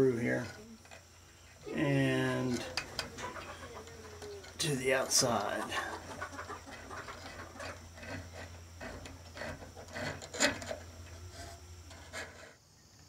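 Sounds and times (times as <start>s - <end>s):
steel cable scraping wood: 0.0s - 12.6s.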